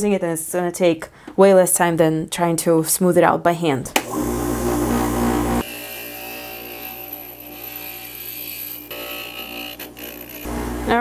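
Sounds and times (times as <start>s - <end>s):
glass grinder motor humming: 4.1s - 11.0s.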